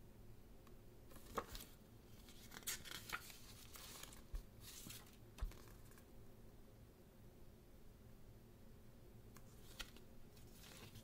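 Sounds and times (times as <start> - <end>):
paper booklet rustling: 1.1 - 6.1, 9.4 - 11.0.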